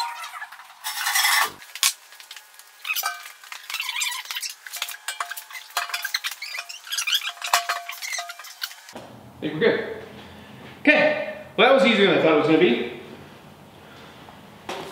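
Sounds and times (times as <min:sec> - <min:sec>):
rushing metal scrape: 0:00.0 - 0:01.6, 0:03.0 - 0:08.9
metal clanks and clinks: 0:03.0 - 0:04.0, 0:04.7 - 0:09.0.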